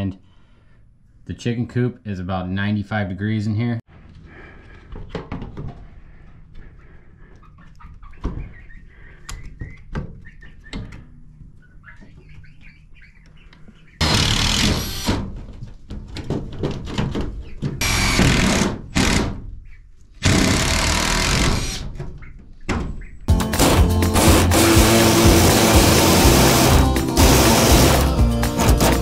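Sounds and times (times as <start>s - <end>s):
cordless drill running: 17.8s - 19.2s, 23.6s - 28.2s.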